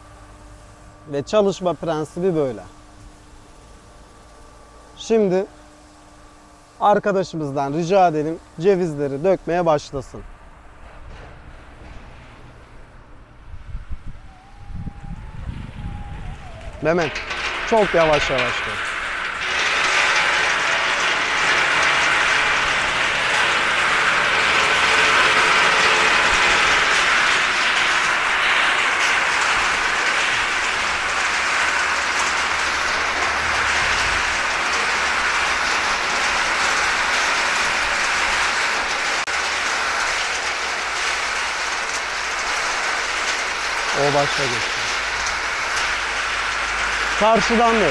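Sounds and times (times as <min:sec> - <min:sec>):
walnuts rattling in a metal drum: 0:16.4 - 0:47.9
nuts dropping onto metal trays: 0:16.9 - 0:47.9.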